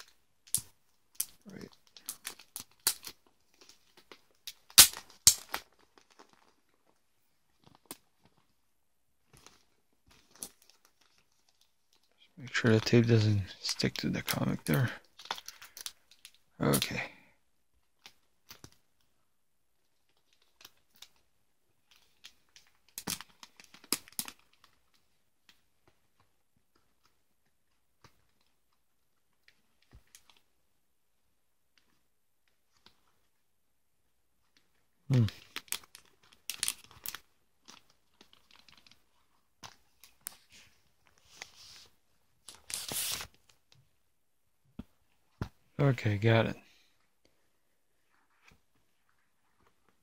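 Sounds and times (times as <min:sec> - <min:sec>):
plastic bag crinkling: 0:01.4 - 0:06.9, 0:35.1 - 0:40.5, 0:42.4 - 0:43.6.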